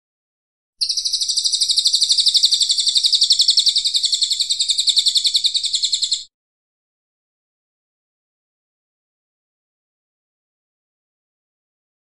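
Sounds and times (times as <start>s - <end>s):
songbird harsh rapid trill: 0.8s - 6.3s.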